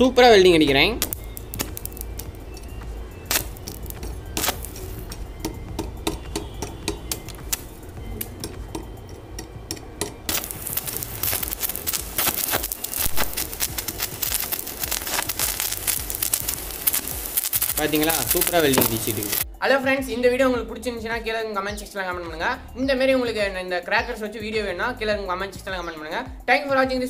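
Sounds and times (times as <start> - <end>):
welding machine hum: 0.0 - 19.4
welding arc crackle: 0.0 - 19.5
welding arc snaps and clicks: 0.7 - 19.5.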